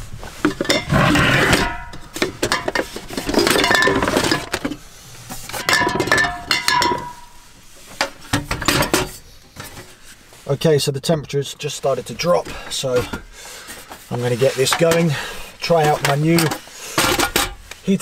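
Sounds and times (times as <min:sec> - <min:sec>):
objects clattering in wooden crate: 0:00.0 - 0:10.0, 0:12.5 - 0:17.6
short metallic rings: 0:05.6 - 0:07.5.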